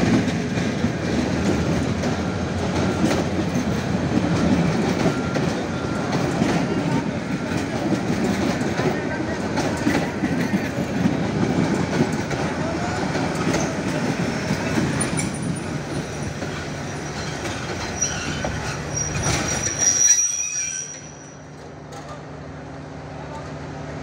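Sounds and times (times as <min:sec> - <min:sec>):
train rumbling past: 0:00.0 - 0:24.0
high wheel squeal: 0:14.9 - 0:21.5.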